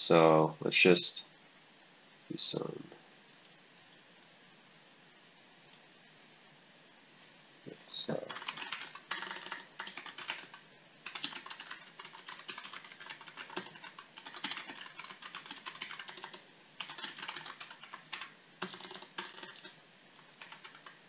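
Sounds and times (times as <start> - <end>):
keyboard typing: 8.2 - 21.0.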